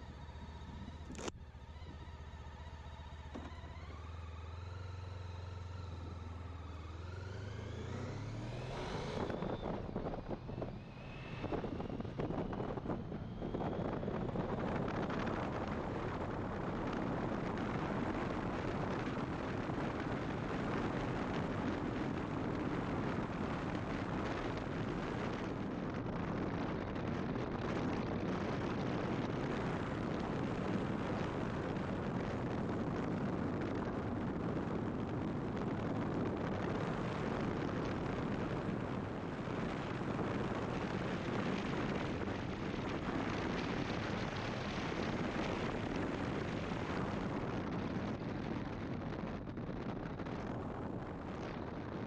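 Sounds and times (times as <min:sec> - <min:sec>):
motorcycle engine and road rumble: 0:00.0 - 0:52.0
wind rushing on microphone: 0:05.2 - 0:52.0.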